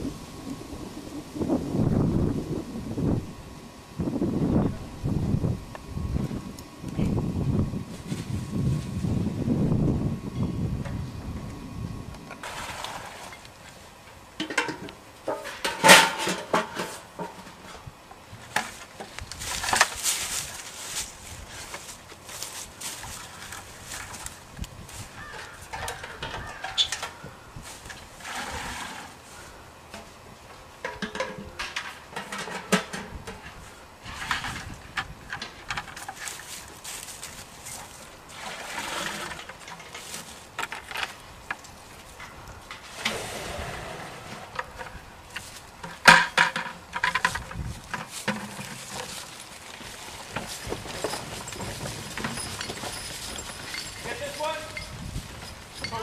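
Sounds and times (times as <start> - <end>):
footsteps in dry leaves: 7.8 - 9.3, 18.8 - 25.7, 36.1 - 38.3, 47.3 - 52.2
metal bucket clanking: 14.4 - 17.8, 30.8 - 34.8, 38.3 - 40.2, 45.8 - 56.0
bucket knocks and squeaks: 25.2 - 27.2, 45.9 - 56.0.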